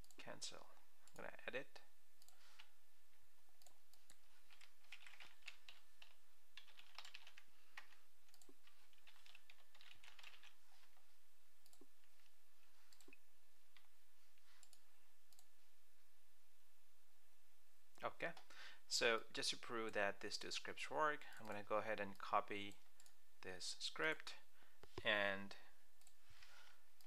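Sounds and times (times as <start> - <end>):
computer keyboard typing: 3.6 - 10.6.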